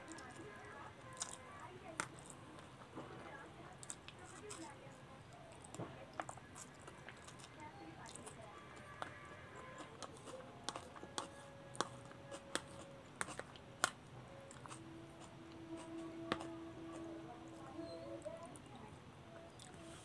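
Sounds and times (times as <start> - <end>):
faint steady hum: 0.0 - 20.0
fork clicking and scraping a plate: 8.9 - 17.0.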